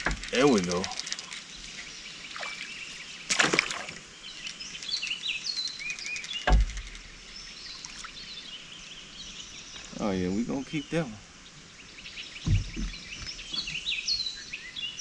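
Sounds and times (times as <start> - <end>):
birds chirping: 0.0 - 15.0
fish splashing in water: 2.3 - 4.1
thump against boat: 12.4 - 13.8.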